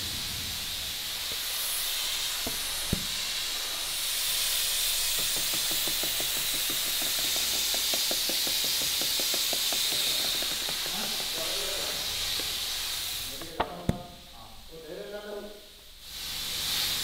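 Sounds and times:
steady hiss: 0:00.0 - 0:17.0
hand scraper scraping plywood: 0:04.8 - 0:12.8
sharp knock: 0:05.1 - 0:12.5.

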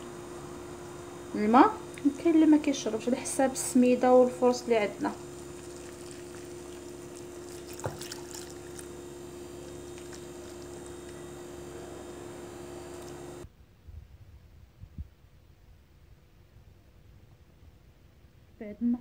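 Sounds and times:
steady low hum: 0:00.0 - 0:19.0
whisk swishing wet batter: 0:05.4 - 0:11.5.

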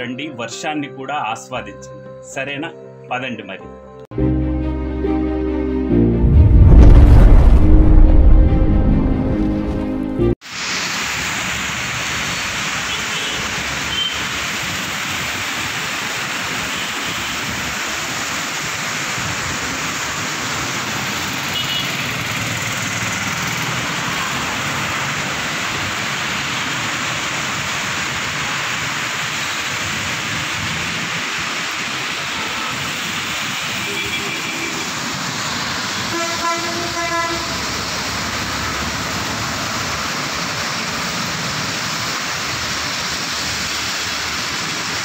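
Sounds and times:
heavy rain pouring: 0:06.2 - 0:45.0
running water: 0:10.4 - 0:45.0
traffic passing through water: 0:10.4 - 0:45.0.

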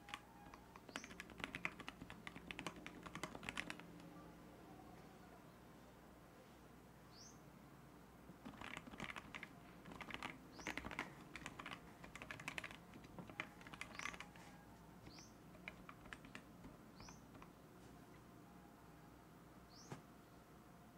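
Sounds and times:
mechanical keyboard typing: 0:00.0 - 0:04.0, 0:08.4 - 0:14.4, 0:15.0 - 0:17.6.

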